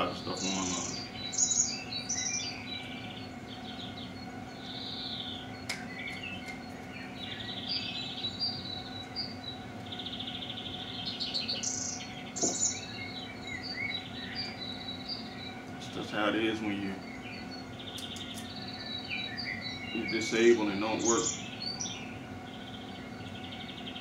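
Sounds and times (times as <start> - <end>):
songbirds chirping and trilling: 0.0 - 24.0
steady low hum: 0.0 - 24.0
sharp clicks: 17.9 - 18.5.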